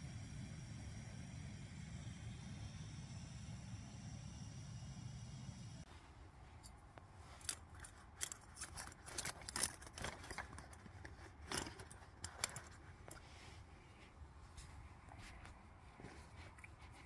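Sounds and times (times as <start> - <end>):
small objects clicking and rustling: 6.6 - 13.2.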